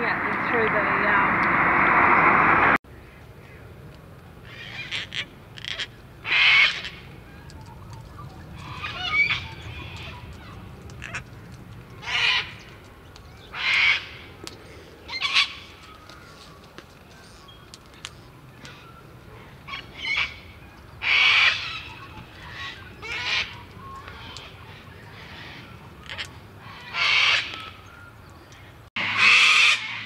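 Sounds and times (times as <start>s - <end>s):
cockatoo harsh calls: 19.4s - 27.8s, 29.0s - 30.0s.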